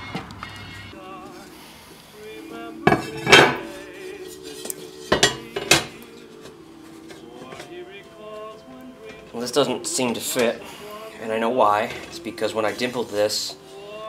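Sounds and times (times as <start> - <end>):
steel disc clanking on steel plate: 4.6 - 5.9.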